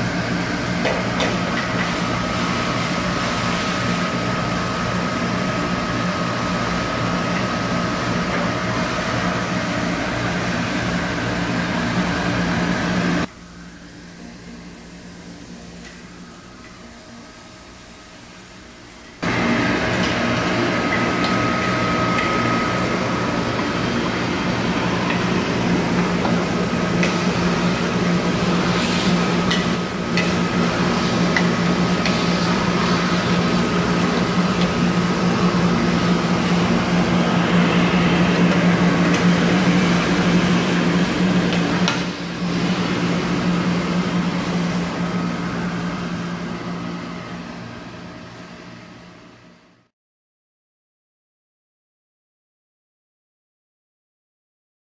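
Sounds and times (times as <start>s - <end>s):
industrial vacuum running: 0.0s - 49.9s.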